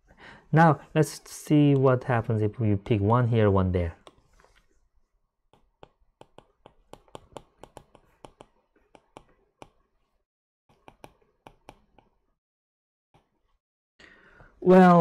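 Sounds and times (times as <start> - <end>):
stylus tapping on tablet screen: 5.5 - 9.9, 10.7 - 12.2.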